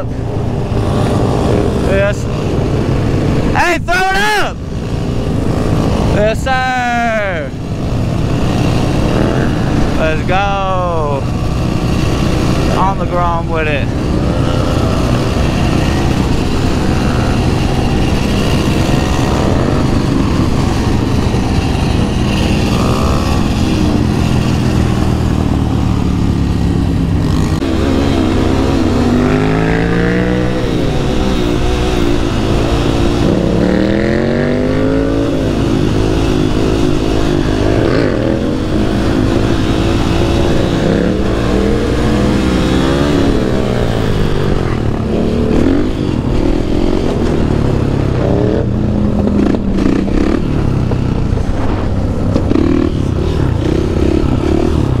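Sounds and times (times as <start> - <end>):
other motorcycles riding: 0.0 - 55.0
dirt bike engine revving: 4.7 - 55.0
wind rush on microphone: 13.9 - 55.0.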